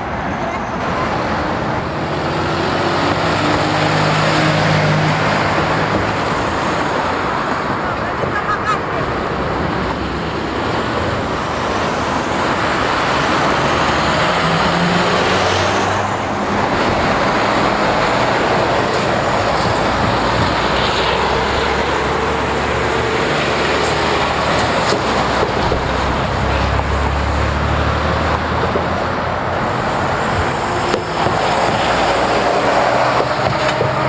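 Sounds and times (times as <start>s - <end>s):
lorries and cars passing: 0.0s - 34.0s
tyre noise on road: 0.0s - 34.0s.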